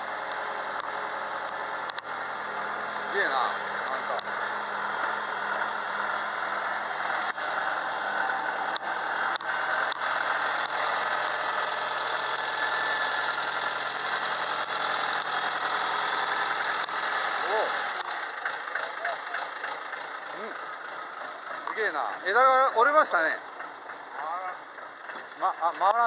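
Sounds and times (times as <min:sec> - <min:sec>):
excavator diesel engine running: 0:00.0 - 0:26.0
sharp clicks: 0:00.2 - 0:02.1, 0:13.3 - 0:17.0.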